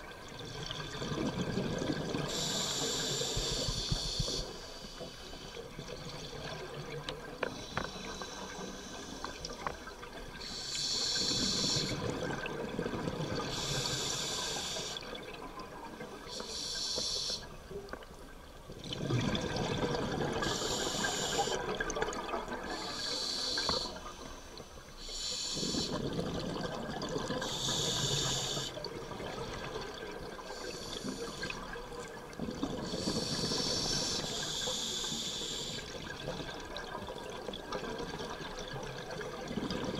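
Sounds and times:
rush of exhaled bubbles: 0.0 - 4.5, 18.7 - 23.0, 25.6 - 34.5, 35.8 - 39.9
regulator hiss on inhale: 2.2 - 5.7, 7.4 - 9.8, 10.4 - 12.1, 13.4 - 15.1, 16.2 - 17.7, 20.4 - 21.8, 22.6 - 26.2, 27.4 - 28.9, 30.4 - 32.0, 32.8 - 36.5.

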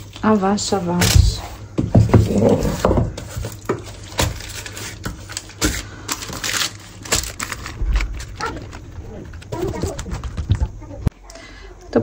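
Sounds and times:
baking paper crinkling: 2.3 - 11.1.

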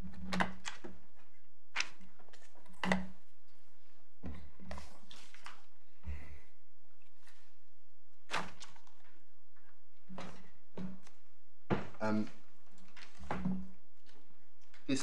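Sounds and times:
thuds and knocks on desks: 10.2 - 12.4.

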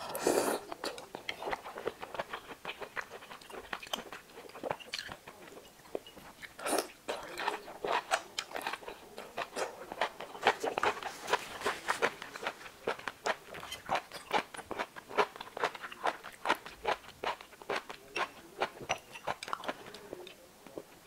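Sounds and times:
slurping noodles: 0.0 - 0.7
wet chewing and lip smacks: 0.7 - 20.8.

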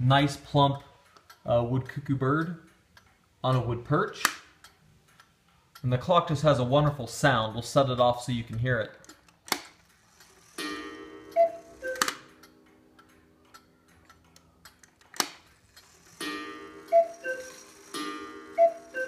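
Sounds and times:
clock movement clicks: 0.3 - 19.0
cuckoo clock calling: 9.9 - 19.0.

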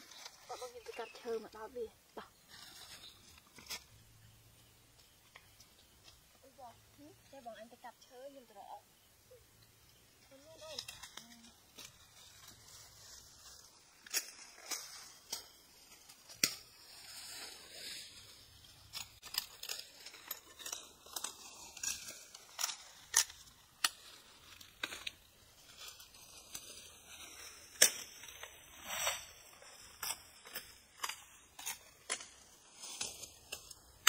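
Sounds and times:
leaves rustling: 0.0 - 34.0.

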